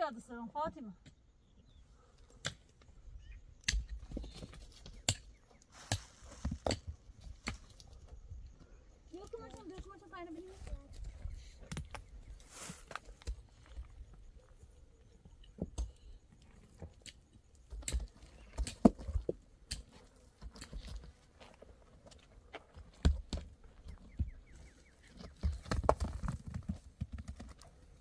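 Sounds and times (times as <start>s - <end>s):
shuffling: 12.3s - 13.2s.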